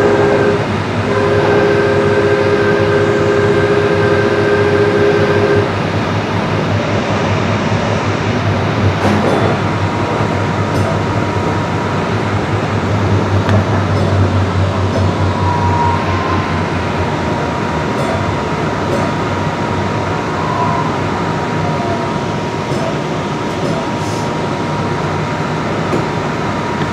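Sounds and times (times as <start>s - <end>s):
train rumble and hiss: 0.0s - 26.9s
faint high whine: 15.0s - 18.8s.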